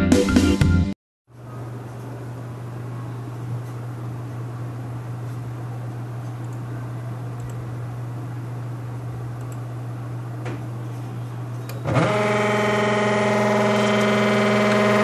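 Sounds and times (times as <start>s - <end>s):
computer mouse clicks: 9.4s - 9.6s.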